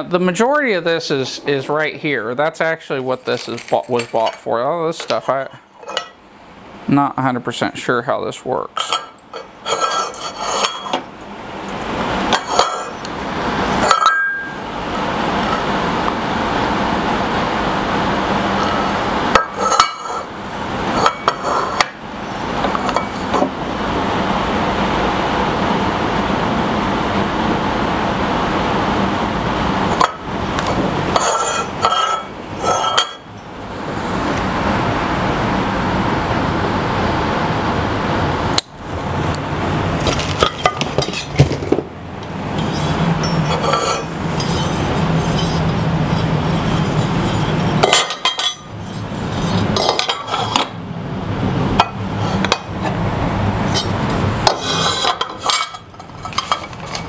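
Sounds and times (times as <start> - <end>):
small metal parts clinking: 3.2 - 4.4.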